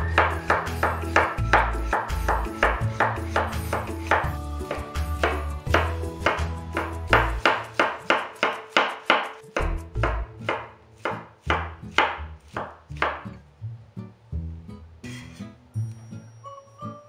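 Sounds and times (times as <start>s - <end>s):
knife chopping on wooden board: 0.1s - 13.3s.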